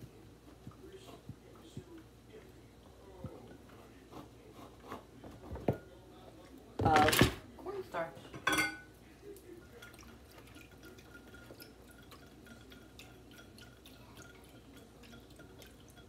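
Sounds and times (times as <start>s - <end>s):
whisk clinking against glass bowl: 9.7s - 16.0s.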